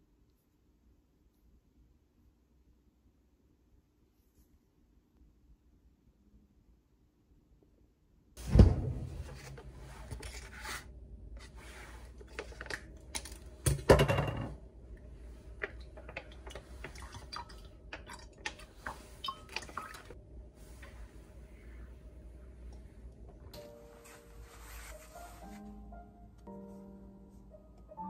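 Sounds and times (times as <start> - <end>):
heavy thunk on hard surface: 8.4 - 9.4.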